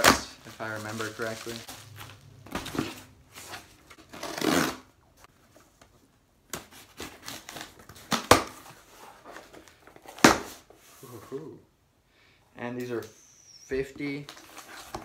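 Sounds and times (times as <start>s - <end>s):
cardboard rustling and scraping: 0.0s - 4.8s, 14.3s - 15.0s.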